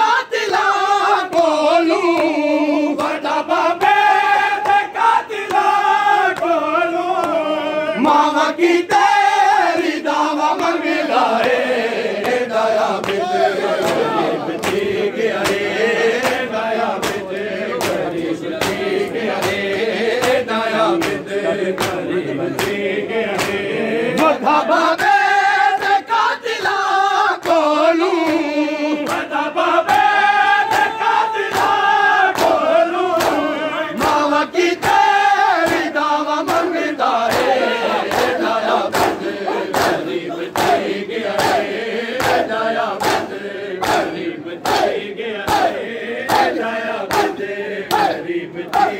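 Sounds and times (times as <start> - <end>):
men chanting in unison: 0.0 - 48.9
chest-beating slaps: 11.4 - 24.4, 29.9 - 48.9.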